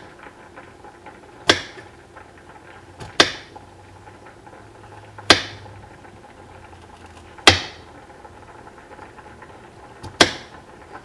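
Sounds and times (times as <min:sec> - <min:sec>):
knife chopping on cutting board: 0:01.5 - 0:01.8, 0:03.0 - 0:03.5, 0:05.3 - 0:05.5, 0:07.5 - 0:07.8, 0:10.1 - 0:10.5.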